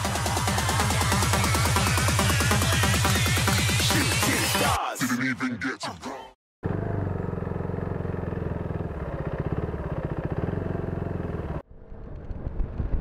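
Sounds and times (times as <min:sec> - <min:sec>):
motorcycle engine running: 0:06.6 - 0:12.8.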